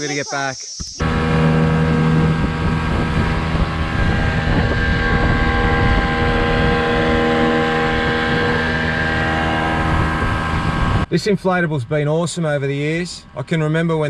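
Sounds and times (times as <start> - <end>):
outboard motor running: 1.0 - 11.1.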